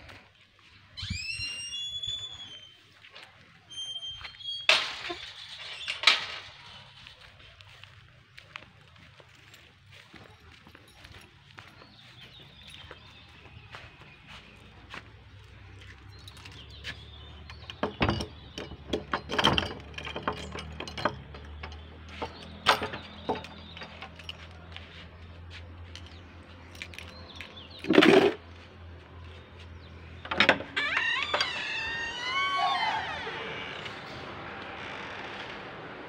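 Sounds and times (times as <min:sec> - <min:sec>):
squeaking creak: 0:01.0 - 0:02.9, 0:03.6 - 0:07.1, 0:30.2 - 0:36.0
metal latch clicks and knocks: 0:17.3 - 0:24.3, 0:30.2 - 0:33.9.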